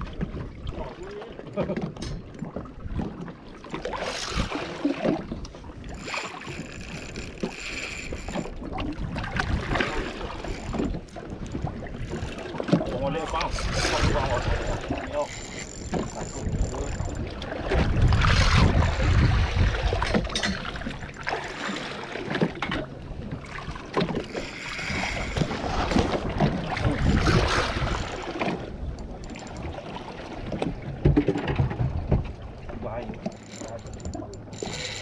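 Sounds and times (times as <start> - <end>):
sea noise: 0.0 - 35.0
wind: 0.0 - 35.0
wind buffeting microphone: 5.2 - 21.6, 24.2 - 35.0.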